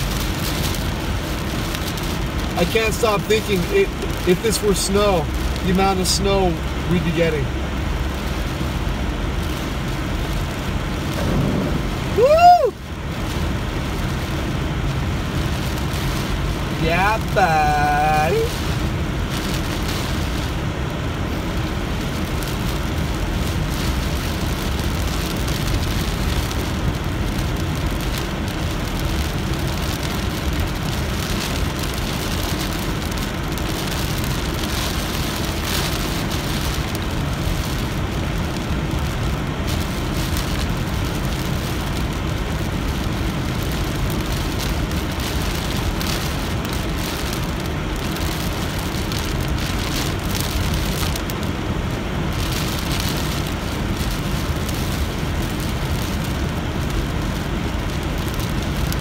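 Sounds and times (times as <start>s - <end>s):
car engine running: 0.0s - 40.1s
heavy rain on car roof: 0.0s - 59.0s
tyres on wet road: 0.0s - 59.0s.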